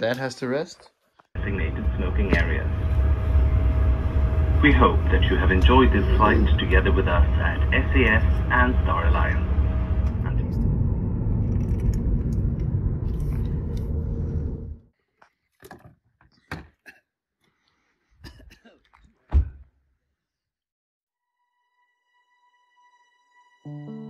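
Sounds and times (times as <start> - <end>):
airliner cabin rumble: 1.4 - 14.9.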